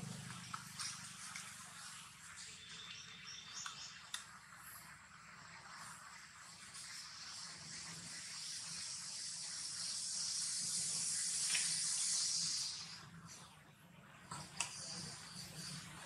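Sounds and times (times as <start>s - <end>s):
hissing insect chorus: 6.8s - 13.1s.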